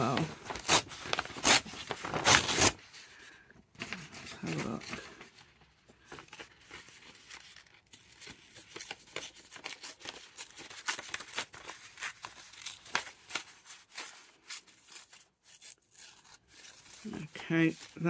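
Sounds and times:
paper tearing by hand: 0.0 - 2.8, 7.1 - 18.0.

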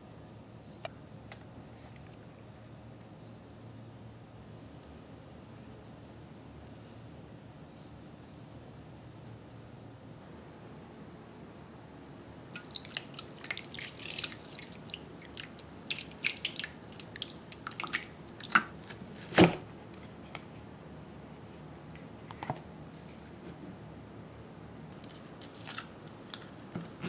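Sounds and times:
water splashing and dripping: 12.6 - 18.8.

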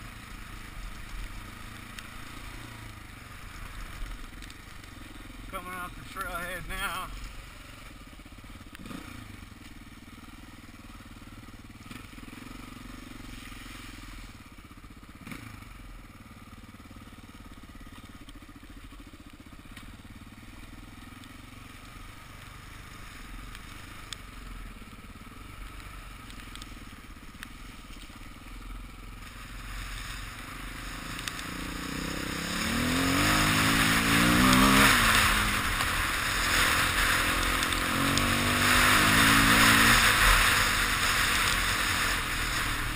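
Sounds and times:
dirt bike engine revving: 5.0 - 9.5, 15.2 - 16.0, 29.2 - 42.9.

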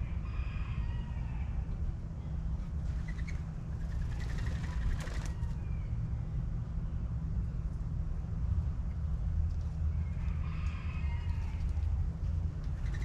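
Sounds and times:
birds chirping: 2.9 - 6.3, 12.7 - 13.0.

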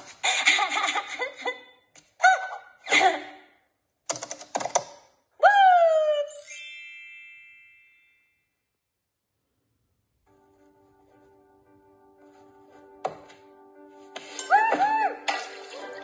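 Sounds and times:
ringing chime: 6.4 - 8.6.

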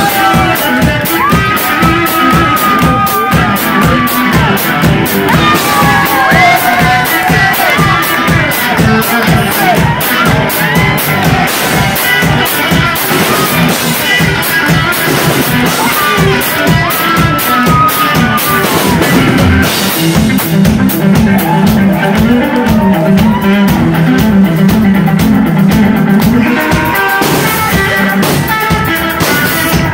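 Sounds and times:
electric guitar: 0.0 - 29.9
fast drum-kit beats: 0.0 - 29.9
heavy low guitar riff: 0.0 - 29.9.

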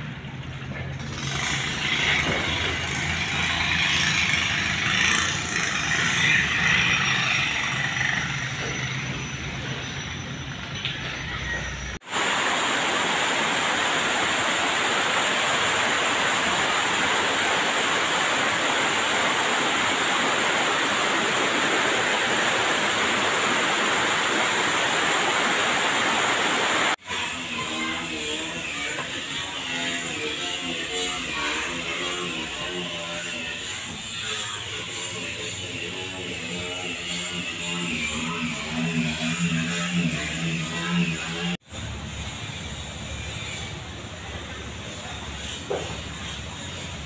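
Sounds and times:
static hiss: 12.1 - 27.0.

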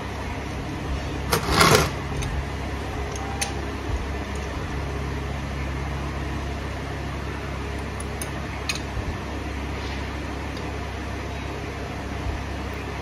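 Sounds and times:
low mechanical hum: 0.0 - 13.0
loud clatter: 1.3 - 2.0.

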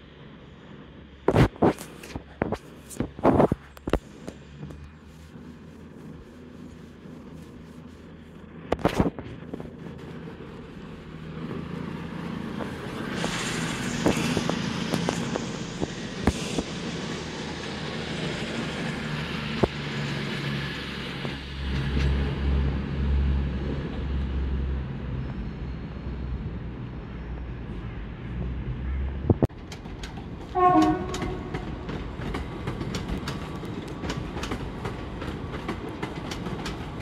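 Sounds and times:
diesel train engine drone: 0.0 - 37.0
train wheel noise: 0.0 - 37.0
wheels clicking over rail joints: 29.5 - 37.0.

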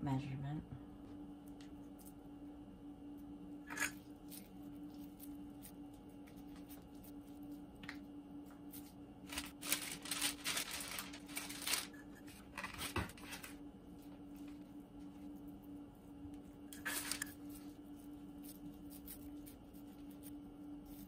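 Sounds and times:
paper rustling and crinkling: 8.7 - 15.1, 16.8 - 21.0.

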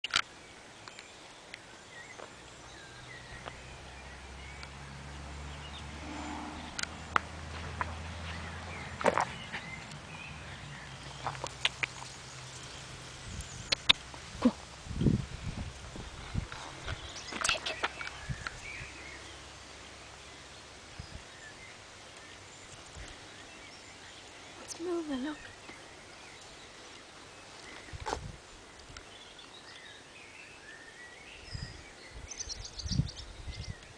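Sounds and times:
low hum: 2.8 - 11.2
sharp clicks: 13.7 - 14.0.

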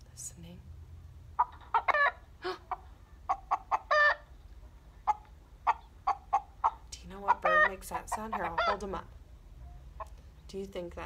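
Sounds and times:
chicken clucking: 1.4 - 9.0.

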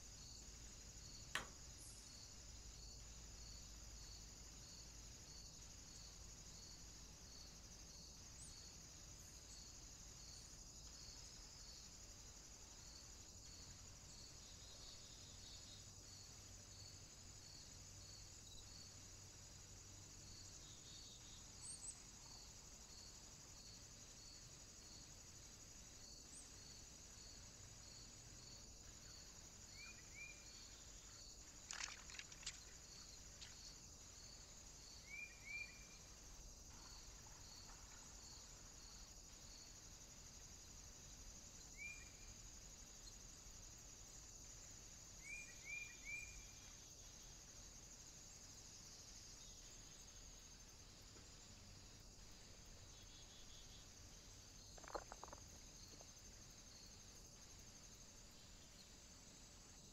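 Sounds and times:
high insect trill: 0.0 - 59.9
cluster of clicks: 31.5 - 32.8, 54.7 - 56.1.

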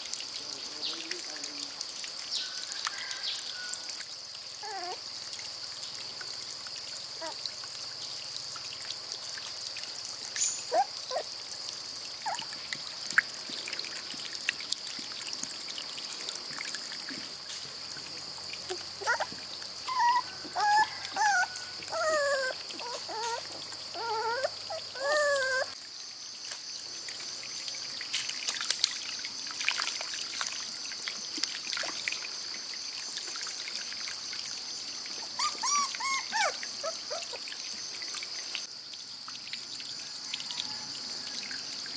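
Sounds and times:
puppy whining: 4.6 - 5.0, 10.7 - 11.3, 12.2 - 12.4, 18.7 - 25.8, 35.4 - 37.4.

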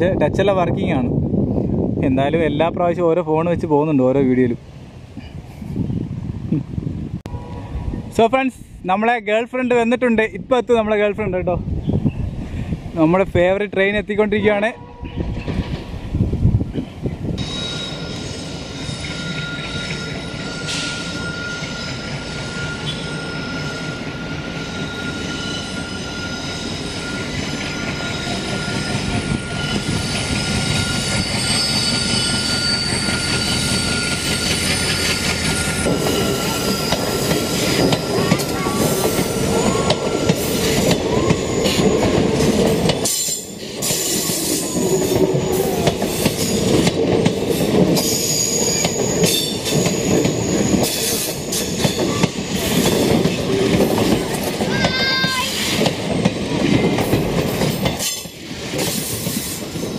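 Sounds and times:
train rumble and clatter: 9.6 - 59.9
train wheels squealing: 17.4 - 59.9.

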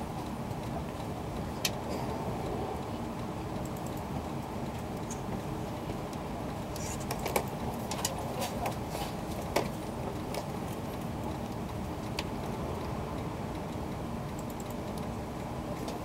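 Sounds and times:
train car low hum: 0.0 - 16.0
sharp clicks: 3.6 - 4.1, 13.5 - 15.1.

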